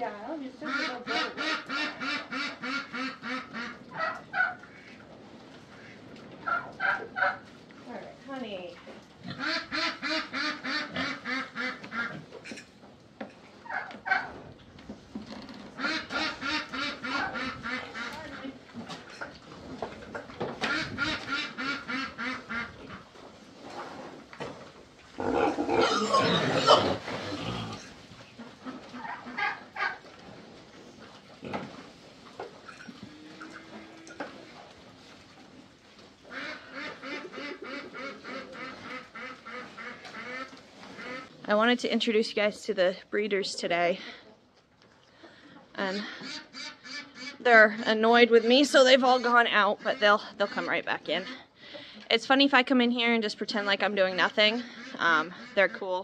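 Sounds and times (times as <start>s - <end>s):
pigs grunting: 9.2s - 12.3s, 25.2s - 28.0s.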